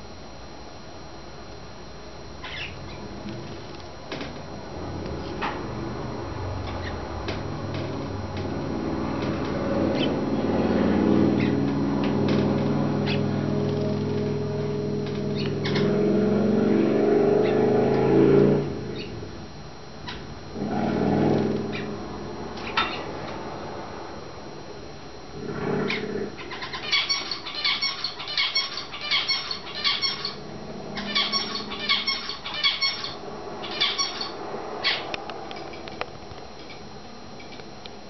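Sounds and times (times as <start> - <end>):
finches chirping: 2.4 - 3.1, 6.6 - 7.1, 9.7 - 10.3, 11.2 - 12.0, 12.9 - 13.8, 15.2 - 16.0, 18.9 - 19.2, 25.9 - 35.9.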